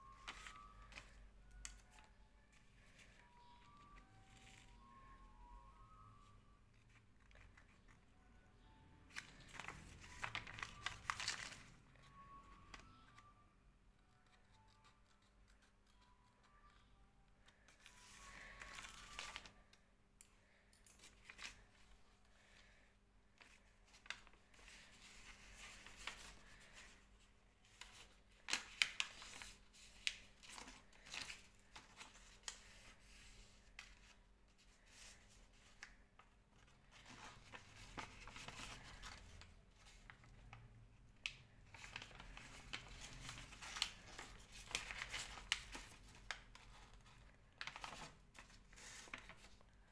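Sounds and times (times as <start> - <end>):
paper rustling and crinkling: 0.0 - 5.0, 9.1 - 12.9, 17.4 - 19.6, 21.0 - 22.8, 23.4 - 49.9.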